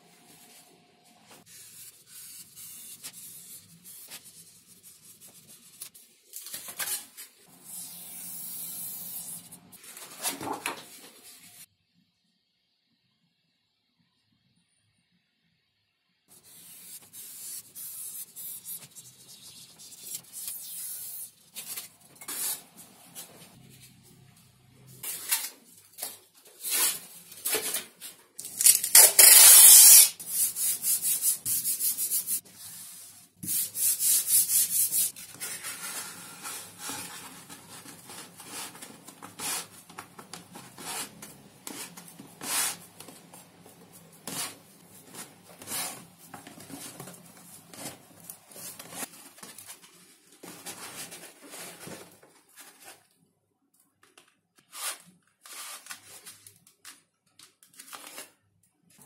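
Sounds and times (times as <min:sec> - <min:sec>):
masking tape ripping off roll: 0:28.5 - 0:30.2
paper and foam rubbing: 0:29.9 - 0:49.2.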